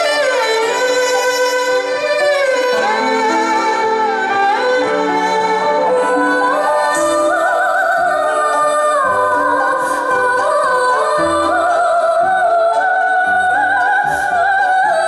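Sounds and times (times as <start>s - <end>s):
orchestral strings: 0.0s - 15.0s
soprano singing opera: 4.2s - 15.0s.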